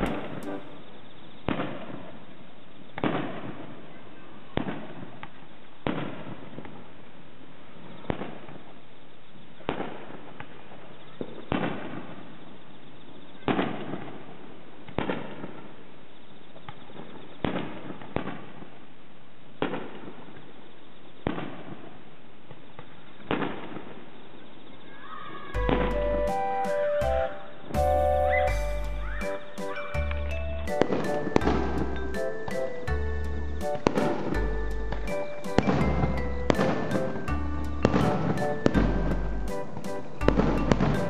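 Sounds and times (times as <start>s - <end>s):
fireworks bursting with echo: 0.0s - 0.8s, 1.4s - 2.0s, 25.6s - 41.0s.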